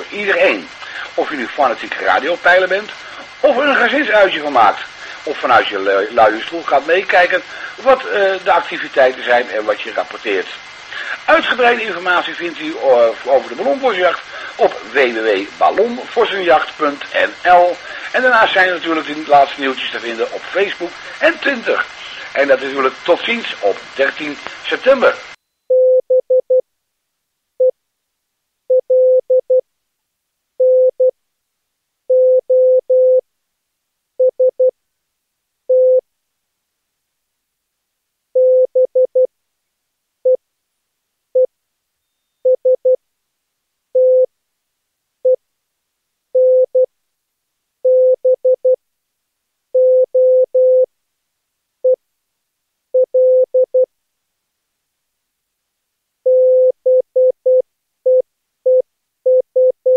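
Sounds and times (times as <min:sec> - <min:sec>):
morse code tone: 0:56.3 - 0:59.9.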